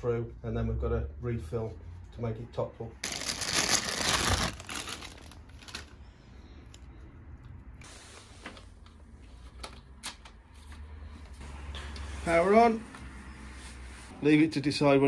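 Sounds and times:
plastic bag crinkling: 3.0s - 6.0s.

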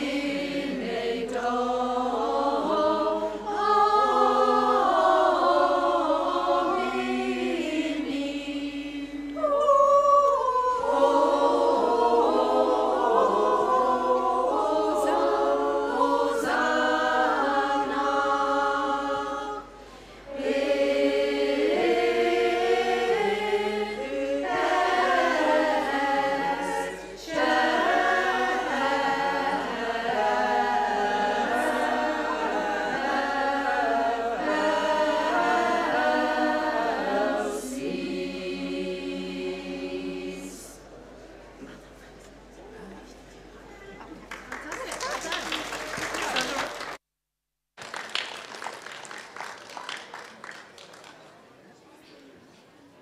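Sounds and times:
women's choir singing a cappella: 0.0s - 41.0s.

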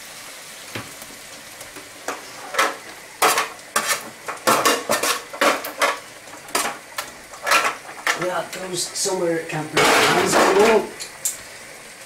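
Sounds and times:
pan sizzling: 0.0s - 12.0s
metal spoon scraping roasting tin: 2.0s - 8.7s.

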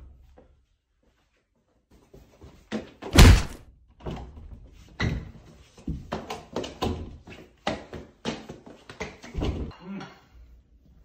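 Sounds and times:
person crashing into door: 3.2s - 3.6s.

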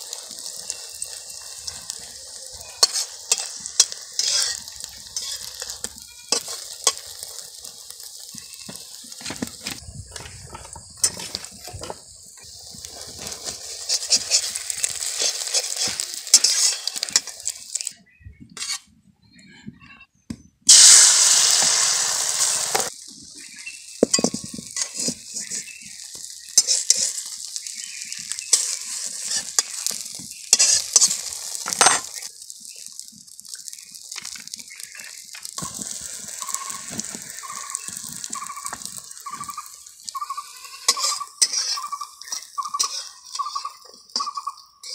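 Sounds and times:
egg sizzling in oil: 0.0s - 18.0s, 20.7s - 44.9s
metal spatula scraping pan: 2.6s - 7.2s, 13.2s - 17.5s, 18.6s - 18.9s, 26.5s - 32.3s, 40.4s - 44.9s.

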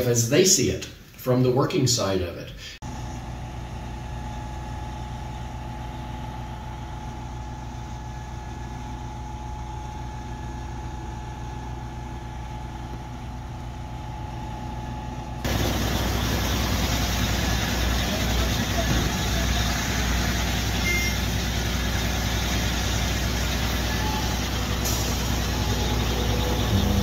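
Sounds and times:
distant diesel engine running: 2.9s - 27.0s
steady whine: 2.9s - 27.0s
loud rough engine noise close by: 15.3s - 27.0s.

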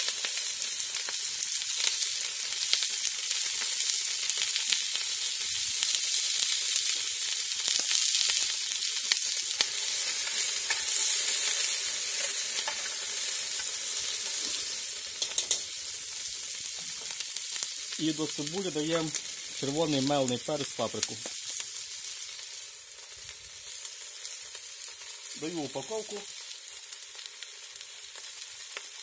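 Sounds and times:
onions sizzling in fat: 0.0s - 29.0s
spoon clicking against pot: 15.2s - 15.7s.

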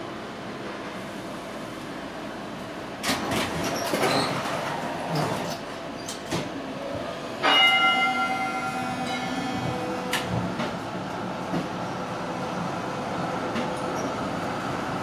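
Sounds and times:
tram wheels rumbling over track: 1.6s - 15.0s
tram gong ringing: 7.4s - 10.4s.

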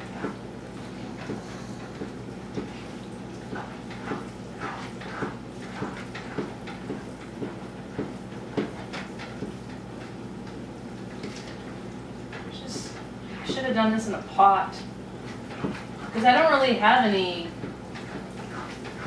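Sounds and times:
steady low hum: 0.0s - 19.0s
utensil stirring and scraping pan: 1.1s - 10.2s, 15.2s - 19.0s.

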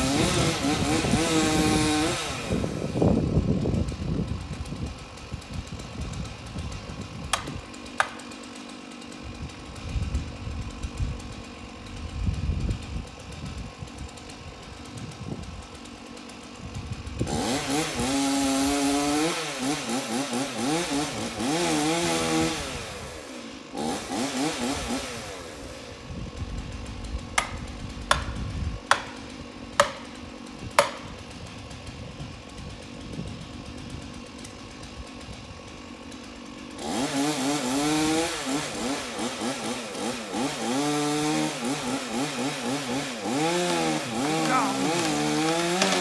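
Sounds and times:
chainsaw cutting wood: 0.0s - 46.0s
wind rumbling on microphone: 0.2s - 7.7s, 9.2s - 15.7s, 16.6s - 17.4s, 26.0s - 29.6s, 30.6s - 34.2s.

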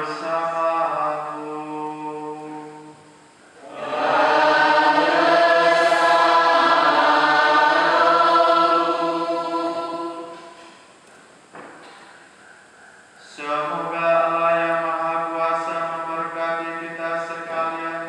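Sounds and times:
person chanting: 0.0s - 3.0s, 3.6s - 10.7s, 13.2s - 18.0s
congregation and choir singing: 3.6s - 10.9s.

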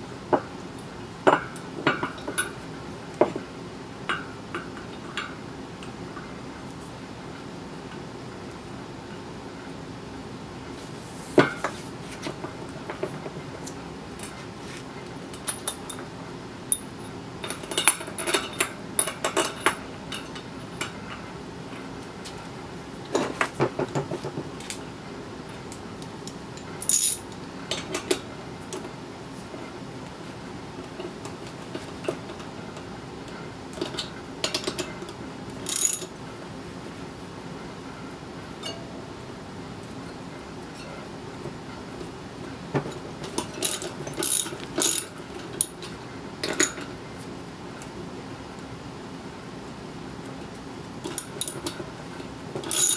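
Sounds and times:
metal tools clinking: 26.8s - 27.2s, 35.7s - 36.1s, 43.4s - 45.8s, 52.6s - 52.9s
ratchet wrench rattling: 26.8s - 27.2s, 35.7s - 36.1s, 43.6s - 45.8s, 52.7s - 52.9s.

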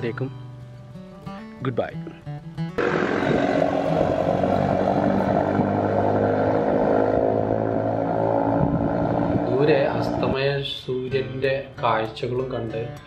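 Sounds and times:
car engine and road noise: 2.8s - 10.6s.

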